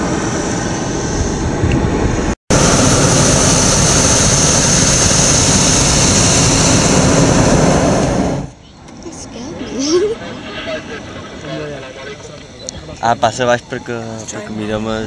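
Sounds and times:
propane burner blasting: 0:00.0 - 0:08.6.

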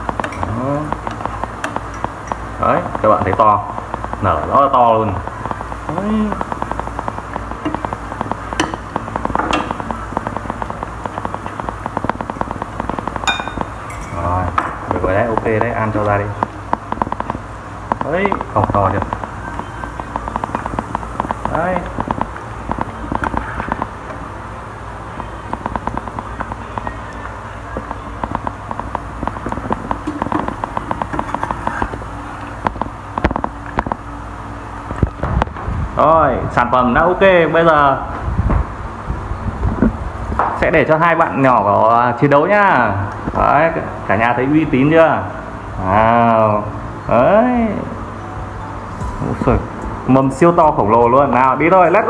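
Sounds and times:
food deep-frying in oil: 0:00.0 - 0:24.3
sharp clicks: 0:06.3 - 0:13.8, 0:16.4 - 0:24.0, 0:25.2 - 0:31.8
metal spoon knocking: 0:13.2 - 0:14.2.

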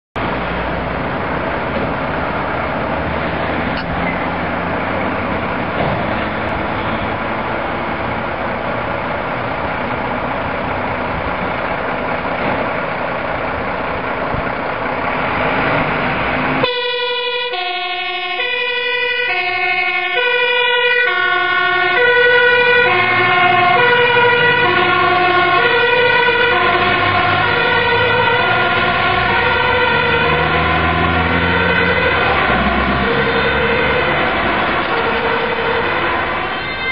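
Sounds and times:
diesel engine running: 0:00.2 - 0:36.9
two-tone siren: 0:16.6 - 0:36.9.

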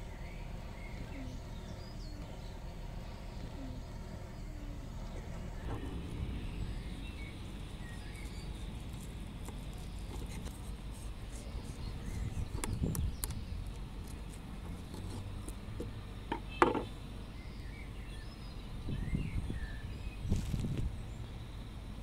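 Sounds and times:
faint bird chirps: 0:00.0 - 0:14.4.

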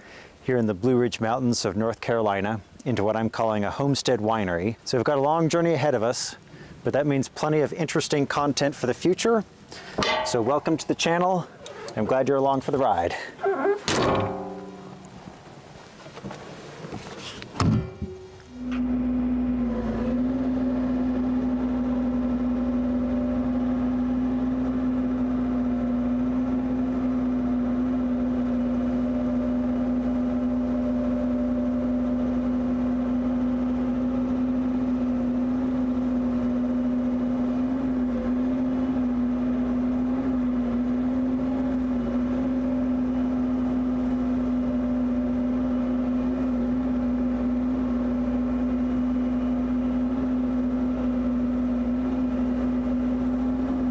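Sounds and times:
excavator driving brush cutter: 0:17.9 - 0:53.9.

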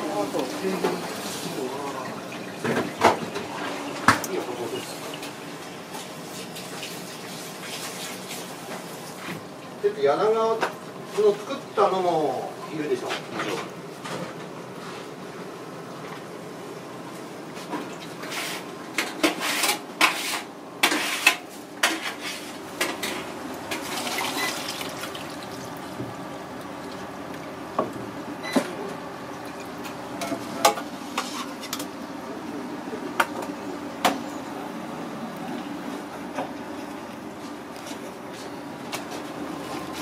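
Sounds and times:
fish splashing in water: 0:23.7 - 0:25.9.

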